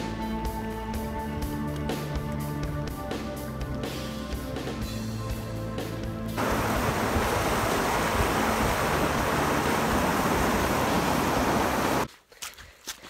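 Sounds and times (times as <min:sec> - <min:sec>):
rushing whitewater: 0:06.4 - 0:12.1.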